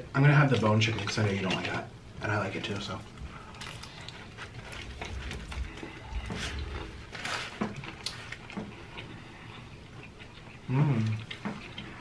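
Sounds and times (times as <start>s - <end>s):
crisp chewing crunches: 2.8s - 12.0s.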